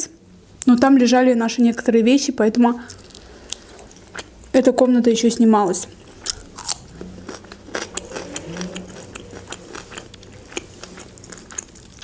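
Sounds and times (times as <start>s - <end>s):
chewing crunchy cucumber: 2.9s - 4.6s, 5.8s - 12.0s.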